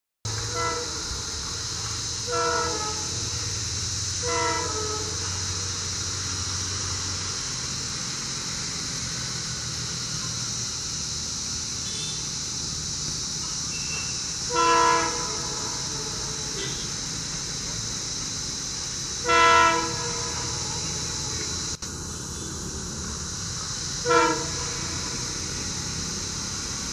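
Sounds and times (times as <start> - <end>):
locomotive horn honking: 0.3 - 6.4, 11.8 - 12.3, 13.7 - 17.3, 19.2 - 21.7, 24.0 - 26.8.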